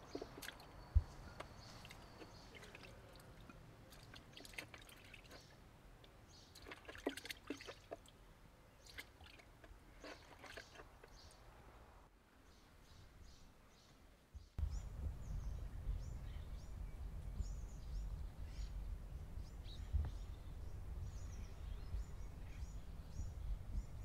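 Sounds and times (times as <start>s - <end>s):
brine dripping and splashing: 0.0s - 0.8s, 1.4s - 8.2s, 8.8s - 11.1s.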